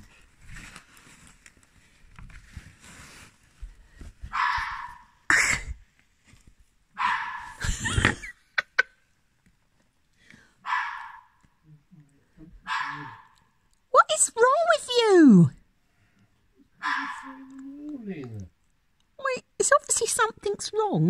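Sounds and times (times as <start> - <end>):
fox barking: 4.3 - 5.2, 7.0 - 7.6, 10.6 - 11.4, 12.6 - 15.2, 16.8 - 17.9.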